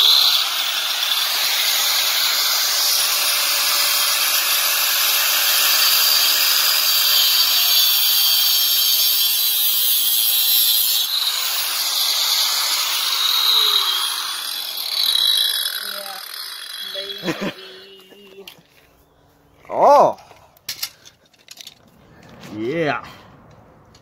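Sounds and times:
angle grinder cutting metal: 0.0 - 18.6.

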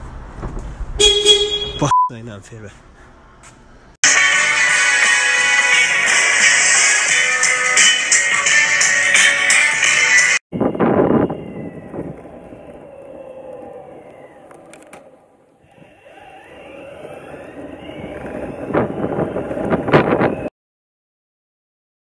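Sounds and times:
wind on microphone: 10.5 - 14.7, 15.6 - 20.5
skateboard wheel roar: 10.6 - 20.5
motor whine sliding in pitch: 11.4 - 20.5.

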